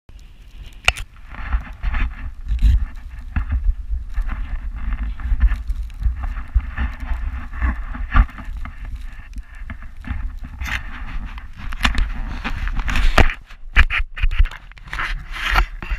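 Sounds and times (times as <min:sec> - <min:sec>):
wind buffeting microphone: 0:00.3 - 0:15.9
snowboard scraping over snow: 0:01.2 - 0:13.5.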